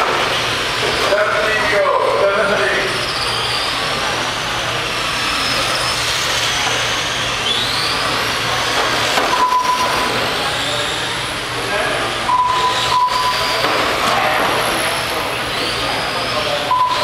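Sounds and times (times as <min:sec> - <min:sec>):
rc car motor whines: 0:00.0 - 0:17.0
short beep: 0:09.3 - 0:10.1, 0:12.3 - 0:13.6, 0:16.7 - 0:17.0.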